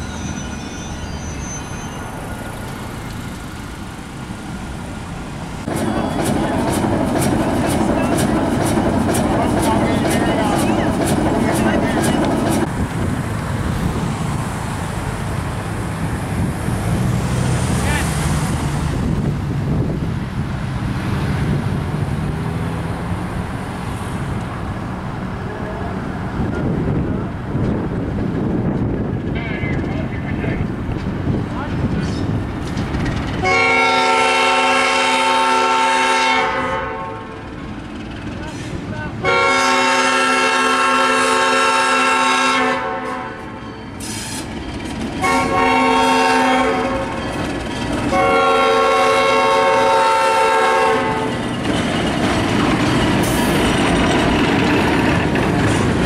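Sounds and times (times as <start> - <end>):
cars crossing railroad crossing: 0.0 - 56.0
wind buffeting microphone: 5.6 - 23.6, 25.9 - 33.5.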